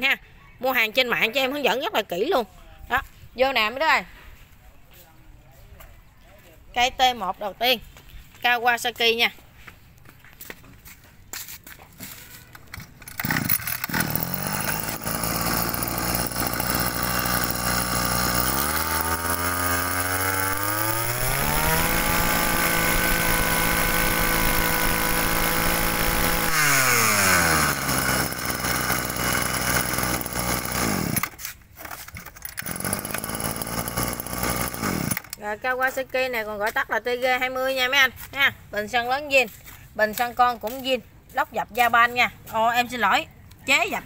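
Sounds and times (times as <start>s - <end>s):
brush cutter engine revving: 12.2s - 35.4s.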